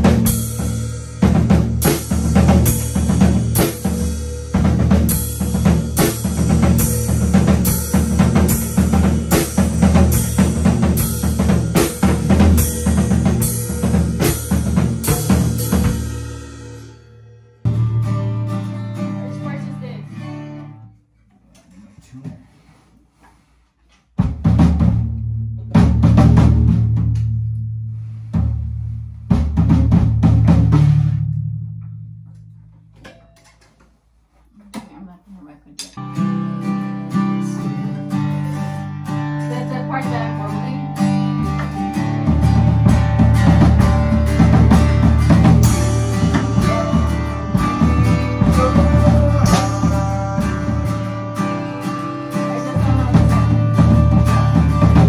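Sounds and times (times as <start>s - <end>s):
kick and snare drum beat: 0.0s - 16.2s, 24.2s - 27.2s, 29.3s - 31.2s, 42.3s - 51.2s, 52.7s - 55.0s.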